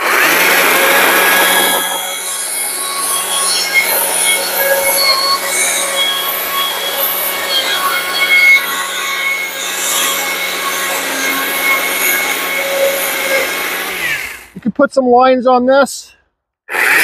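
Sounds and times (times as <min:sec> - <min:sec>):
chainsaw cutting wood: 0:00.0 - 0:14.6, 0:16.7 - 0:17.0.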